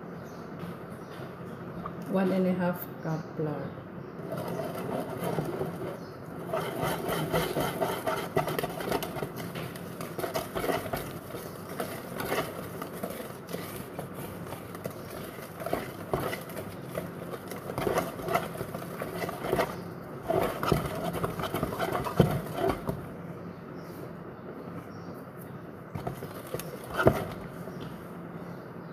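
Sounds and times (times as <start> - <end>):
whisk beating batter in bowl: 4.2 - 23.1, 26.0 - 27.6.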